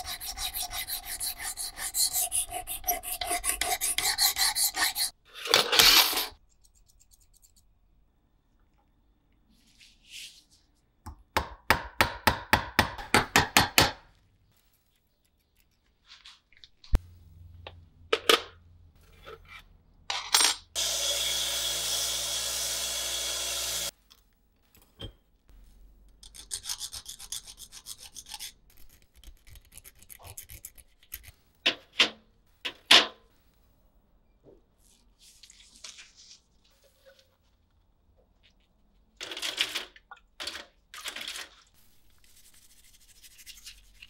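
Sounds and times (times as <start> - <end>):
rubbing strokes on knife: 0.0 - 5.2, 41.8 - 44.0
motorized tool running: 20.8 - 23.9.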